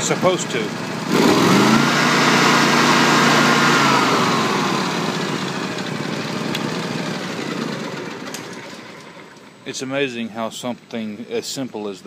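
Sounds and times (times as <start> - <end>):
engine revving: 0.0 - 9.3.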